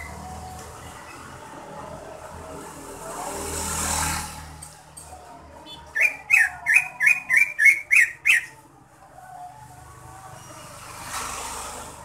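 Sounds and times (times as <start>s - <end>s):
passing vehicle hiss: 0.0s - 5.0s, 9.4s - 12.0s.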